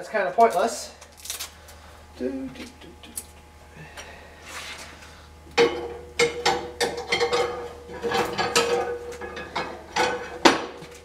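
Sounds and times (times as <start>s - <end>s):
metal rod clanking and scraping: 5.6s - 10.5s.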